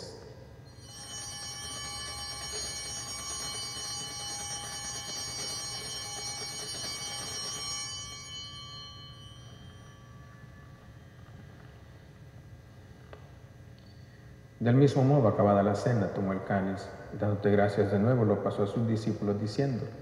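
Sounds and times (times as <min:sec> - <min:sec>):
altar bells ringing: 0:00.6 - 0:12.8.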